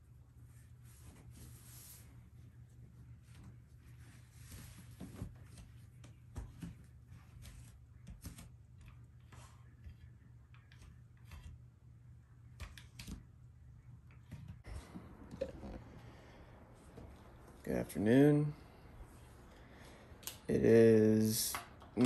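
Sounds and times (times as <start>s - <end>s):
steady low hum: 14.7s - 22.0s.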